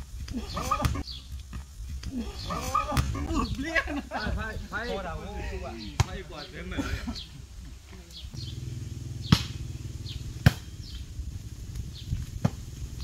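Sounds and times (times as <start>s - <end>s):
low steady hum: 8.4s - 13.0s
hands striking volleyball: 9.3s - 9.6s, 10.4s - 10.6s.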